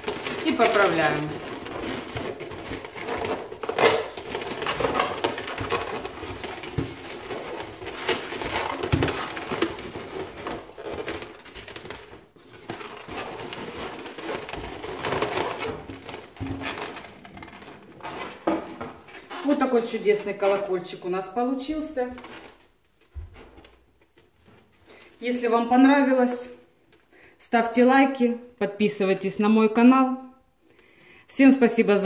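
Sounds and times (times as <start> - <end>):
balloons squeaking and rubbing: 0.0 - 20.9.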